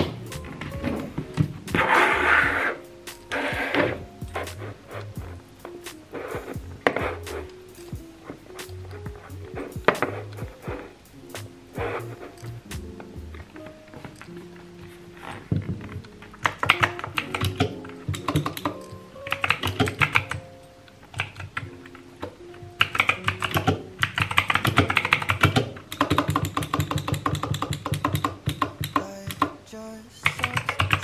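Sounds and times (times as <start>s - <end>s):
soft background music: 0.0s - 31.0s
mechanical keyboard typing: 15.9s - 20.4s, 21.1s - 29.6s, 30.2s - 31.0s.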